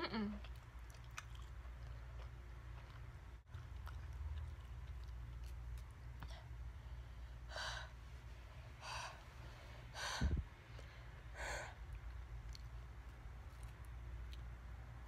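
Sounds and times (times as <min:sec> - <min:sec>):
woman breathing hard: 0:07.0 - 0:08.0, 0:08.7 - 0:11.8.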